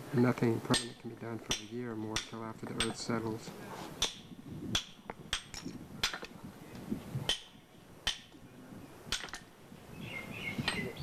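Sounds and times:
hammer tapping on stone: 0.7 - 3.1, 4.0 - 6.3.

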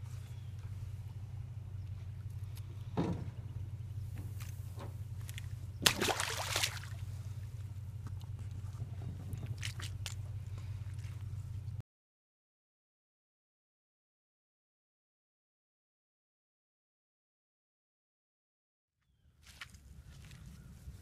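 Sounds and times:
steady low hum: 0.0 - 11.8
fish splashing into water: 5.8 - 7.1, 9.4 - 10.2.

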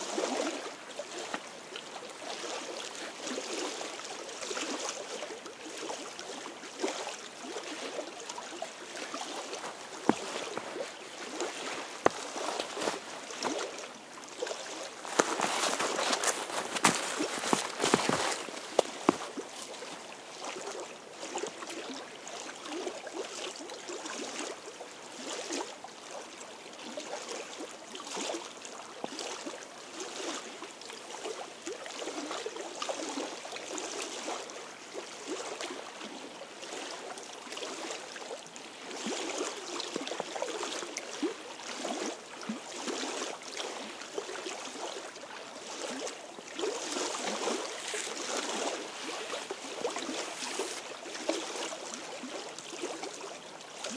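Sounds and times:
waves lapping against rocks: 5.9 - 21.6, 45.7 - 53.2.

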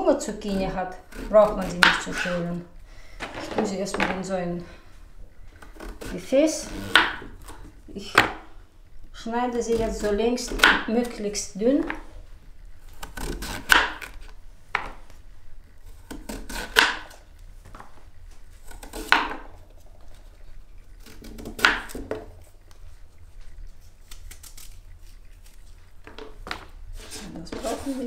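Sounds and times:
knife slicing zucchini: 0.4 - 2.6, 5.6 - 8.4, 9.5 - 12.0, 12.9 - 15.0, 15.9 - 17.2, 18.6 - 19.5, 21.0 - 22.3, 24.0 - 24.8.

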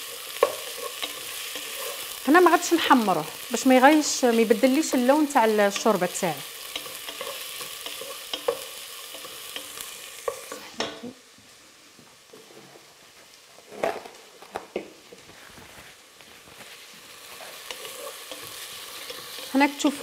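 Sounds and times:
wooden spoon stirring: 0.0 - 3.5, 4.6 - 10.6, 16.6 - 20.0
onions sizzling in oil: 0.0 - 15.3, 16.0 - 20.0.

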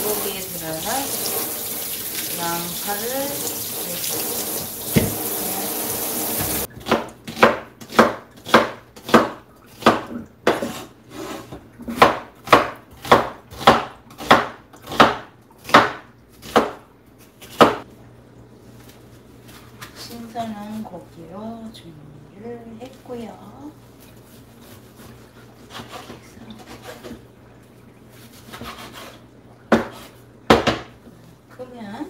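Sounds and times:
tap water running: 0.0 - 7.2
knife chopping on wooden board: 4.9 - 5.2, 6.4 - 10.8, 11.9 - 16.8, 17.4 - 17.8, 28.5 - 30.9.

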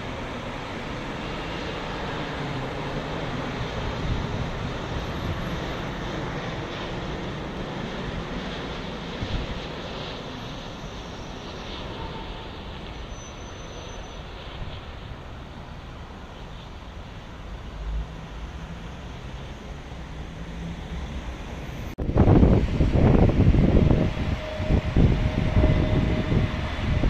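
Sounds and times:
jet airliner engine rumble: 0.0 - 27.0.

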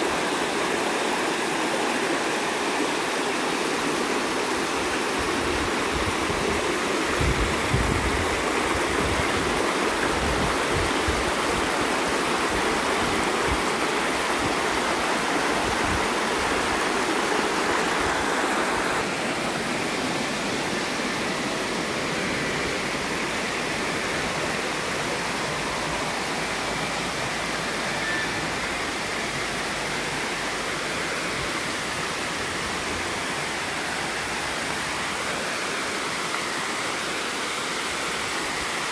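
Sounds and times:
rushing falling water: 0.0 - 38.9.

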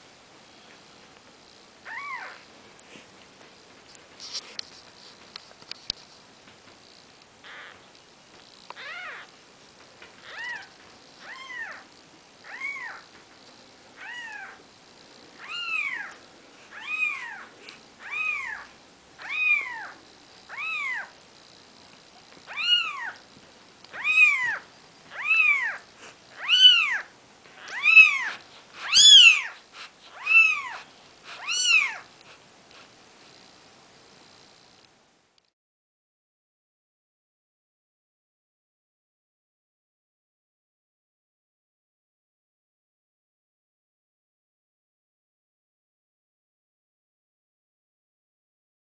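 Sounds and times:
kitten mewing: 7.4 - 7.8, 24.0 - 32.1.

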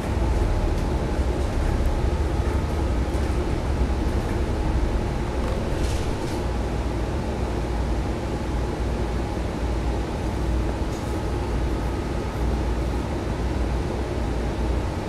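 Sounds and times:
road noise: 0.0 - 6.4
bus engine rumble: 0.0 - 8.0, 8.6 - 15.0.

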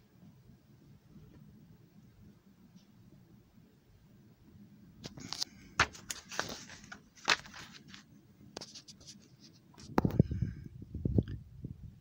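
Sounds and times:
paper pages rustling: 5.0 - 10.1.

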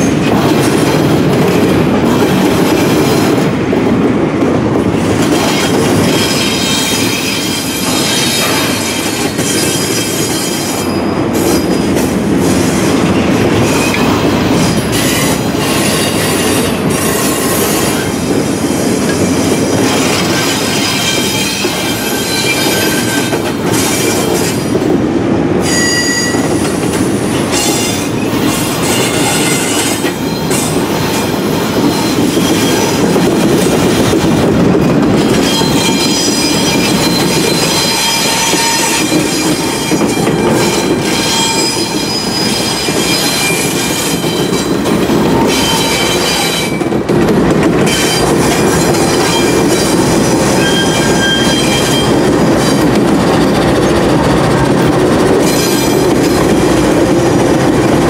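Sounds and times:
freight train rumble: 0.0 - 58.0
steel wheels squealing on rail: 5.0 - 24.9, 25.6 - 47.0, 47.8 - 58.0
clicking at rail joints: 25.7 - 58.0.

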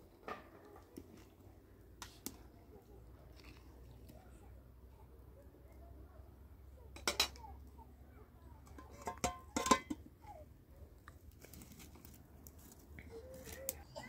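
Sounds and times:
metal cookware clattering: 7.0 - 7.4, 8.7 - 10.1.

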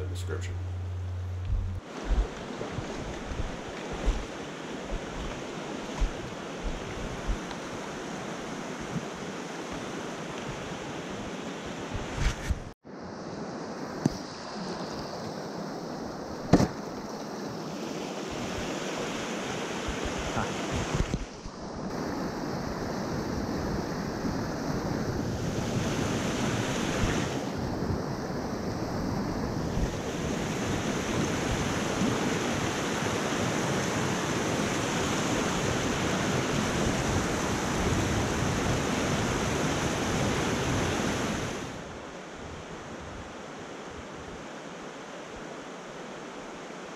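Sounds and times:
river water rushing: 0.7 - 12.0
wind noise on microphone: 0.8 - 7.8, 11.8 - 12.7, 18.3 - 43.3.

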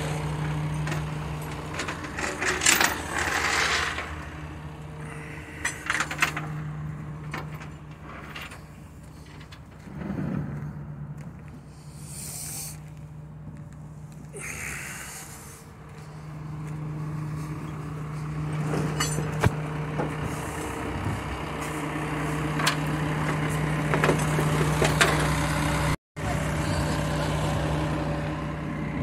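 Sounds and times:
tow truck winch humming: 0.0 - 9.9, 11.4 - 29.0
metallic clanks: 18.6 - 20.1.

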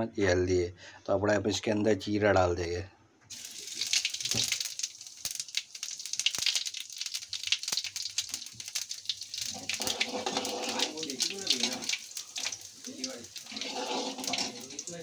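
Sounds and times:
seeds sizzling in hot oil: 3.3 - 15.0.

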